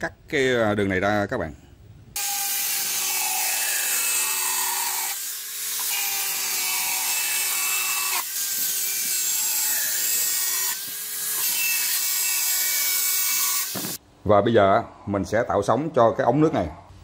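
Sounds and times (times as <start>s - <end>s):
angle grinder cutting pipe: 2.2s - 14.0s.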